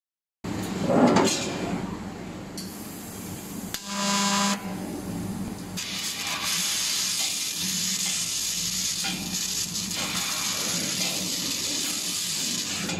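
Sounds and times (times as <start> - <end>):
steady hum: 1.7 - 5.8
laser cutting machine noise: 3.7 - 4.7, 5.8 - 12.9.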